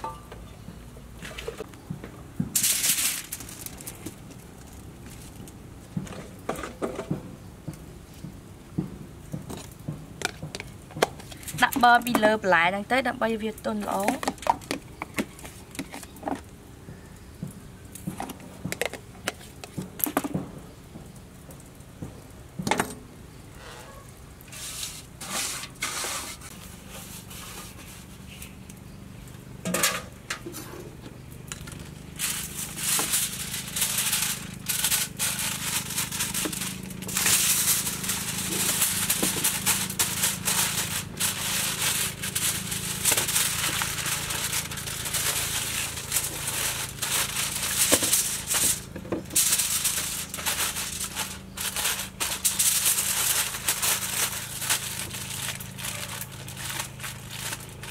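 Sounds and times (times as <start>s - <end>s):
aluminium foil crinkling: 2.5s - 5.6s, 10.6s - 16.5s, 31.3s - 57.9s.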